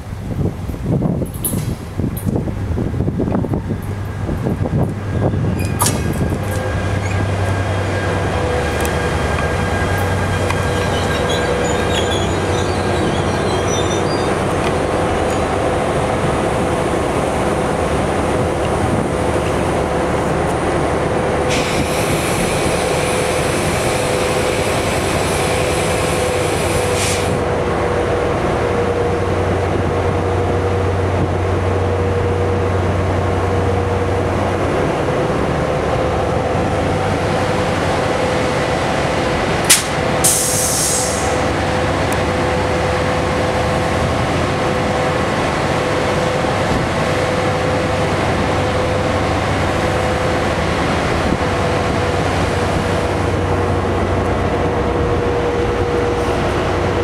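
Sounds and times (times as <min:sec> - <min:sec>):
locomotive diesel engine humming: 0:00.0 - 0:57.0
faint brake squeals: 0:09.5 - 0:14.6
air hiss: 0:21.5 - 0:27.4, 0:39.7 - 0:41.4.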